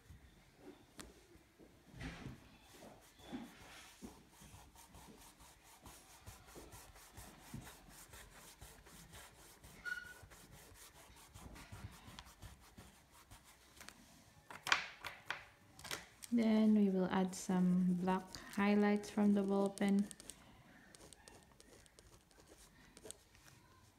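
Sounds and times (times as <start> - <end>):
faint squeak: 2.0 - 3.9, 9.7 - 10.4
pastel scratching on paper: 2.6 - 13.9, 17.6 - 23.5.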